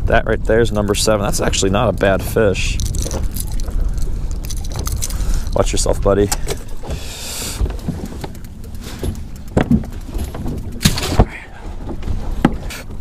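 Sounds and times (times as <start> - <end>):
low steady rumble: 0.0 - 13.0
gear knocking and rattling: 0.3 - 13.0.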